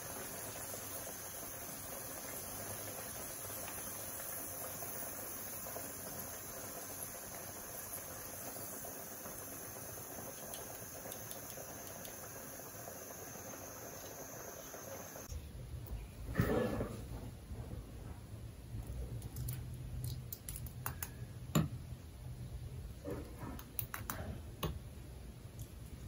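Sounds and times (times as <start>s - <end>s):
oil sizzling in a pan: 0.0s - 15.4s.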